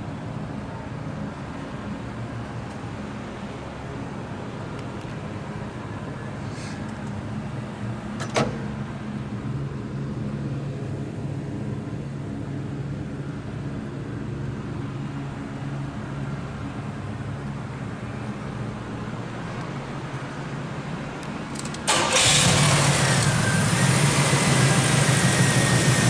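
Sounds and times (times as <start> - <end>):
car engine idling: 21.4 - 26.0.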